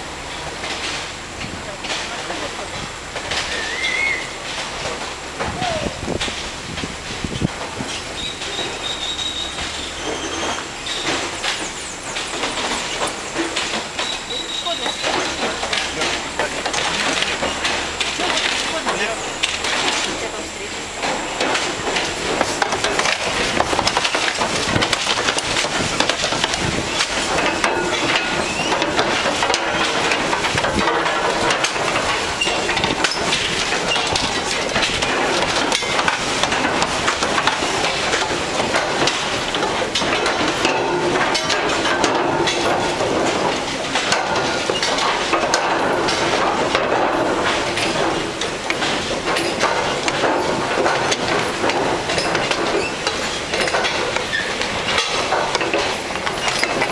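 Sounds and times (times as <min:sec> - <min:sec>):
car tyres rolling over planks: 0:00.0 - 0:56.9
wooden boards clattering: 0:00.0 - 0:56.9.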